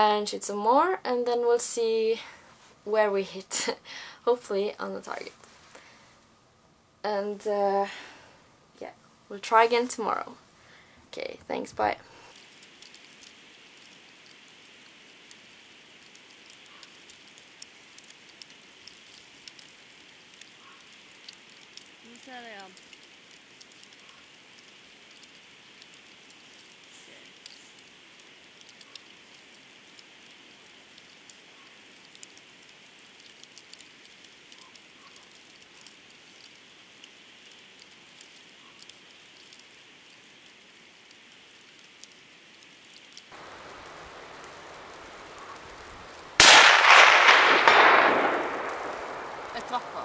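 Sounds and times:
faint steady hiss with ticks: 0.0s - 50.0s
suppressed rifle shot with echo: 46.4s - 50.0s.

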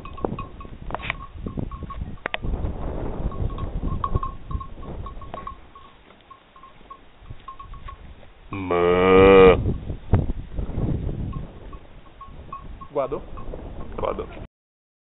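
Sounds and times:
cow mooing: 8.5s - 9.7s.

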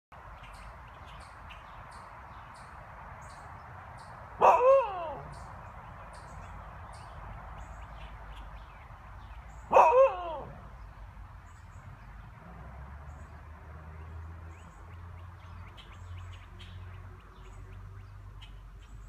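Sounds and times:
nestling birds peeping: 0.2s - 12.4s
dog barking: 4.4s - 5.2s, 9.7s - 10.6s.

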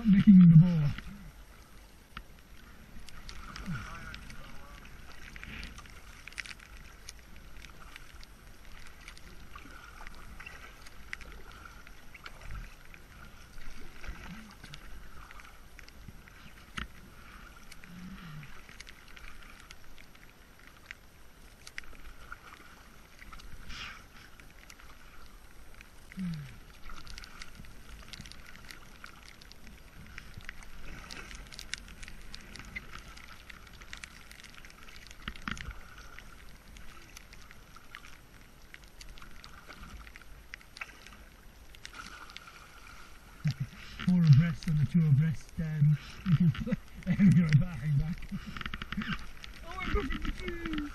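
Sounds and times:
low rumble: 0.0s - 1.4s
paddle blades splashing: 0.0s - 50.9s
small ticks: 2.1s - 50.9s
water dripping: 24.6s - 50.9s.

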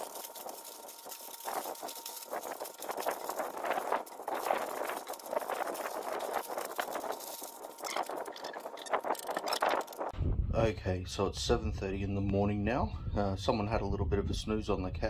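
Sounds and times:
aluminium foil crinkling: 0.0s - 10.1s.

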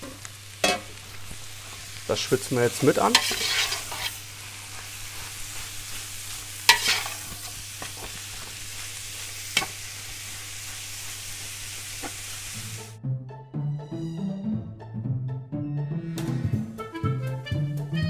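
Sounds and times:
beef sizzling in a pot: 0.0s - 13.0s
background music with strings: 12.6s - 18.0s.

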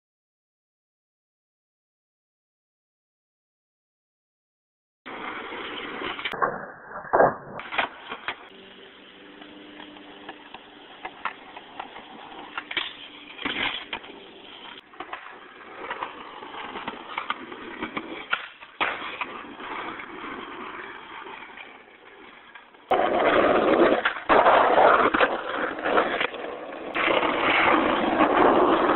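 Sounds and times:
skateboard wheels rolling on pavement: 5.1s - 28.9s
skateboard clacks: 9.4s - 28.9s.

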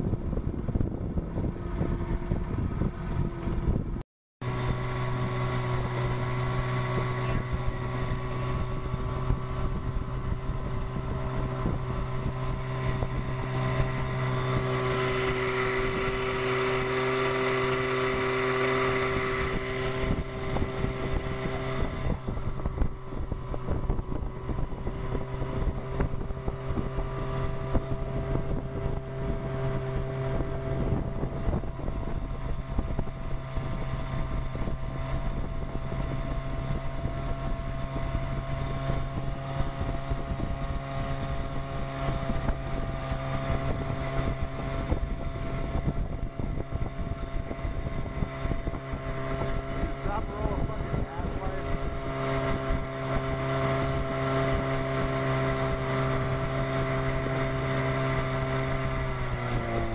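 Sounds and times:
outboard motor running: 0.0s - 59.9s
wind on microphone: 0.0s - 59.9s.

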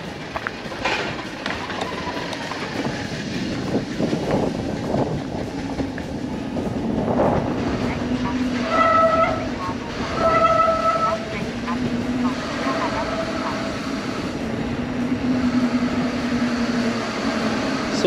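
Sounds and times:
bicycle trailer rattling rumble: 0.0s - 18.0s
faint brake squeal: 10.2s - 11.2s.

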